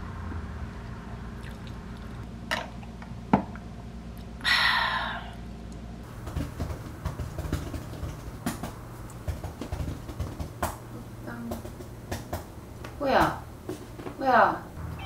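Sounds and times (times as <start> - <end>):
low steady hum: 0.0 - 15.0
laptop keyboard typing: 6.1 - 10.8.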